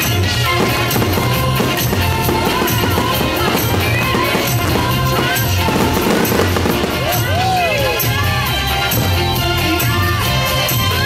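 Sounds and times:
music with steady drum beat: 0.0 - 11.0.

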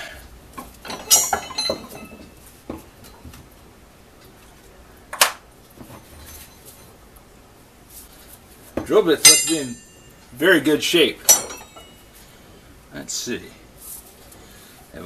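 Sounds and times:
drill bits clinking on metal: 0.8 - 2.3, 9.2 - 10.2, 11.2 - 12.0.

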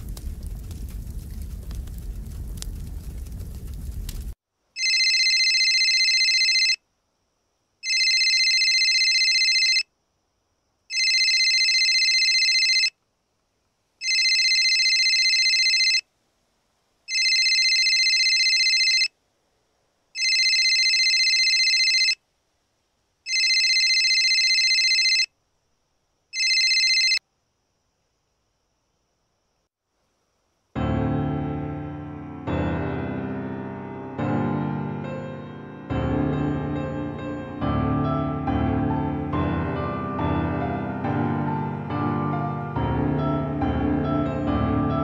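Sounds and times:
telephone ringing: 4.8 - 6.8, 7.8 - 9.9, 10.9 - 13.0, 14.0 - 16.0, 17.1 - 19.1, 20.2 - 22.2, 23.3 - 25.3, 26.4 - 27.2.

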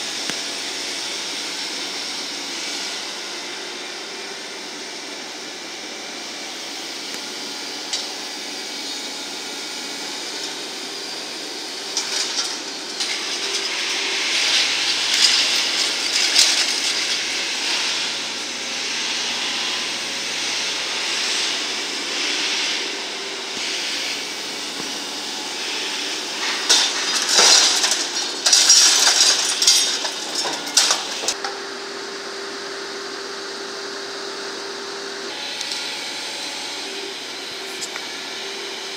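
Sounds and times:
backhoe engine running: 6.3 - 38.9
metal and rubble clattering: 11.8 - 18.4, 26.3 - 31.4.

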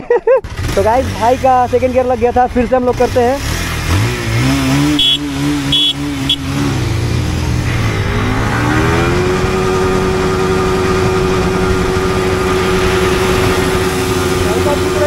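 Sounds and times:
motorcycle engine revving: 0.4 - 15.0
other motorcycle engines: 0.4 - 15.0
short horn beeps: 4.9 - 6.6.

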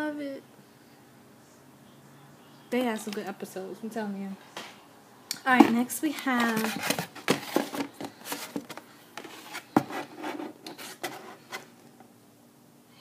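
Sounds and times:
cardboard packaging rustling: 6.2 - 11.8.

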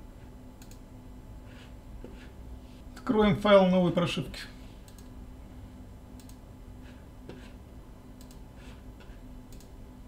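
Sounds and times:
computer mouse clicking: 0.6 - 0.8, 4.8 - 5.2, 6.2 - 6.4, 8.2 - 8.4, 9.5 - 9.8.

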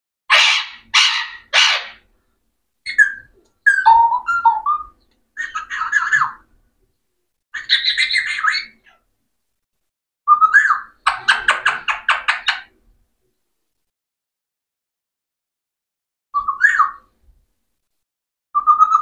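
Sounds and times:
parakeet squawking and chattering: 0.3 - 2.1, 2.9 - 6.5, 7.6 - 9.0, 10.4 - 12.7.

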